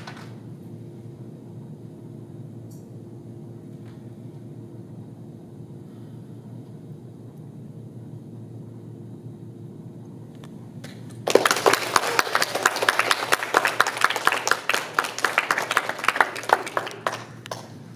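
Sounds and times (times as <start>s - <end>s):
audience clapping: 0.0s - 0.4s, 10.8s - 17.9s
low room hum: 0.0s - 17.9s.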